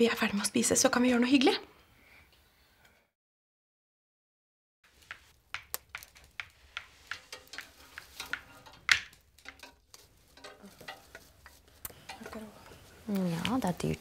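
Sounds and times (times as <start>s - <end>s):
game pieces clicking on board: 4.9s - 9.7s.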